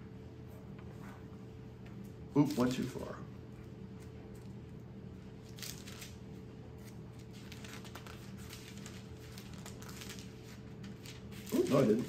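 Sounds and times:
faint steady hum: 0:00.0 - 0:12.0
pages being leafed through: 0:05.4 - 0:06.2, 0:06.8 - 0:12.0.

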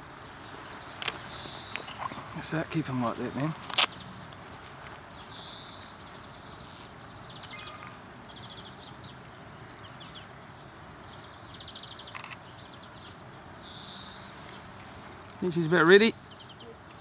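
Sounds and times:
insect chirping: 0:00.0 - 0:02.2, 0:03.6 - 0:10.8, 0:13.6 - 0:15.4
steady background hiss: 0:00.0 - 0:17.0.

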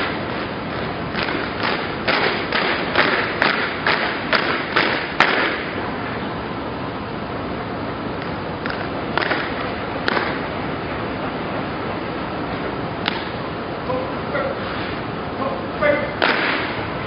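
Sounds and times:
boots stamping in unison: 0:00.0 - 0:05.7
steady hiss: 0:00.0 - 0:17.0.

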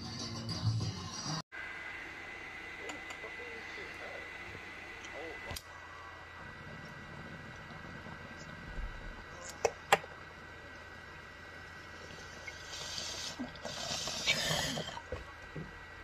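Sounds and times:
bubbling water and air: 0:05.8 - 0:16.0.

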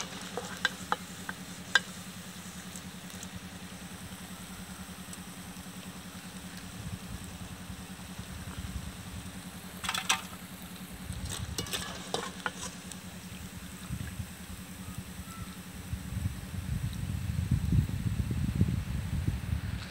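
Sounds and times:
food sizzling in hot oil: 0:00.0 - 0:14.8
steady low hum: 0:00.0 - 0:19.9
metal skimmer clinking on pan: 0:11.6 - 0:12.8.

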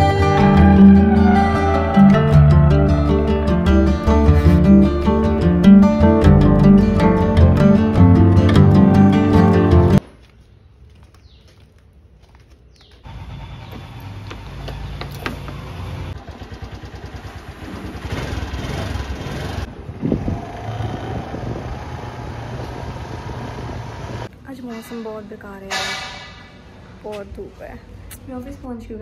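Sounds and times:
scooter engine running: 0:13.0 - 0:24.3.

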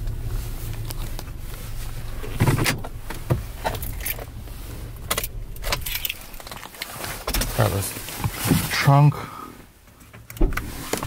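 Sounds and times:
car engine idling: 0:00.0 - 0:10.8
car keys jangling: 0:02.2 - 0:07.9.

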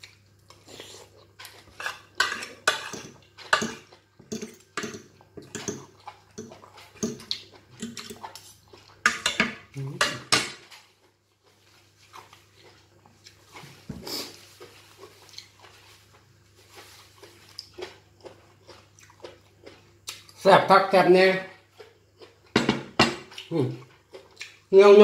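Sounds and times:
chewing and mouth sounds: 0:00.0 - 0:09.0, 0:10.8 - 0:20.4, 0:21.6 - 0:22.5, 0:23.2 - 0:24.7
cutlery scraping on a plate: 0:01.6 - 0:07.2.

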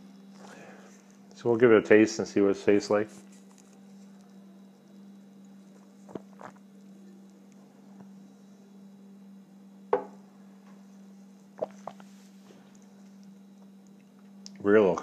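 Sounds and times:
steady low hum: 0:00.0 - 0:15.0
glass knocking on table: 0:09.9 - 0:10.2.

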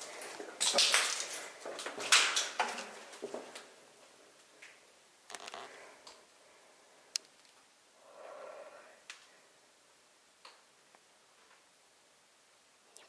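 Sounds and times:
short breathy sound: 0:08.0 - 0:09.0.

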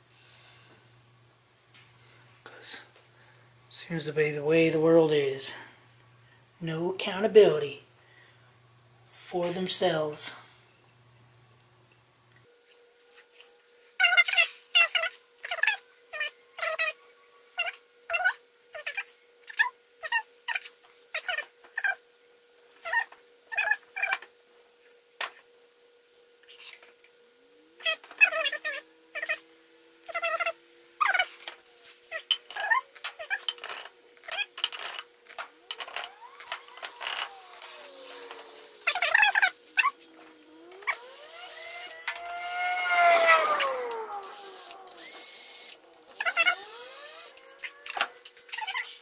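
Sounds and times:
faint steady hum: 0:00.0 - 0:49.0
high-pitched animal cries: 0:14.0 - 0:17.0, 0:27.8 - 0:29.5, 0:38.8 - 0:40.0, 0:40.7 - 0:45.2, 0:46.0 - 0:49.0
power tool motor whining: 0:32.5 - 0:48.8.

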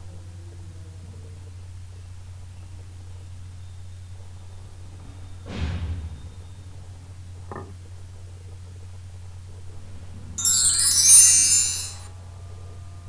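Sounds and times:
shimmering chime: 0:10.4 - 0:12.1.

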